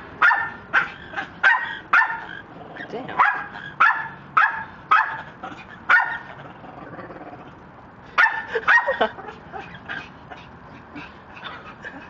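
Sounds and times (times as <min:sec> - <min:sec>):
parrot barking calls: 0:00.2 - 0:02.6, 0:03.2 - 0:06.3.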